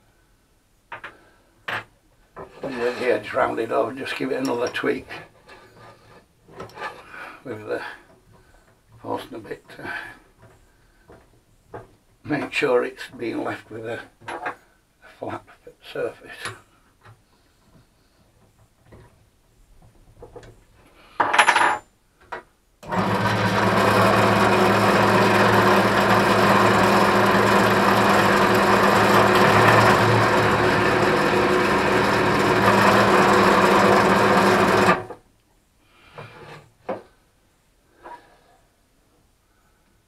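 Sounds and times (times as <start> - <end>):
drill bit cutting plywood: 22.8 - 35.2
drill press motor running: 22.8 - 35.2.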